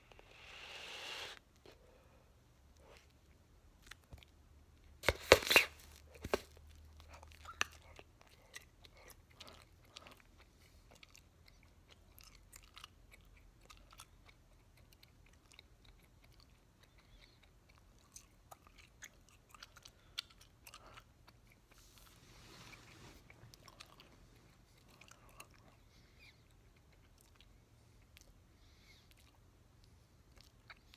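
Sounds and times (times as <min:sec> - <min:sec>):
soft breathy hiss: 0:00.0 - 0:02.4, 0:21.8 - 0:23.3
mouth chewing gum: 0:05.3 - 0:30.9.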